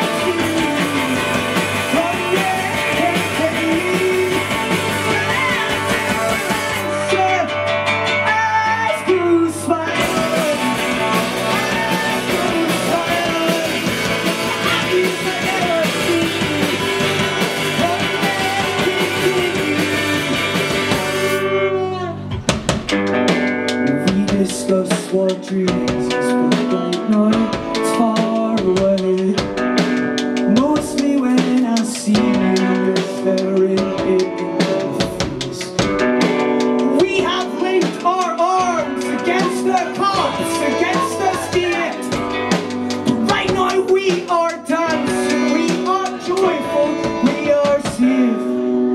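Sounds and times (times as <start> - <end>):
electric bass: 0.0 - 29.8
drum kit: 0.0 - 48.9.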